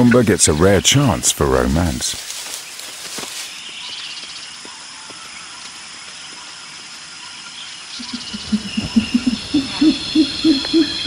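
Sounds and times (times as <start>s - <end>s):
gorilla low hoots: 8.0s - 11.0s.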